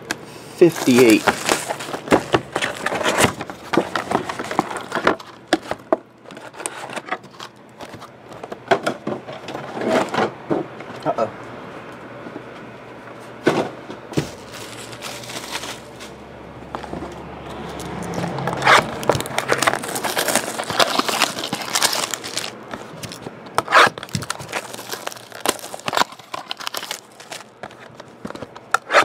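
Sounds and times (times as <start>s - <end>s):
card packs crinkling: 0.5s - 8.6s, 14.2s - 16.2s, 17.6s - 29.0s.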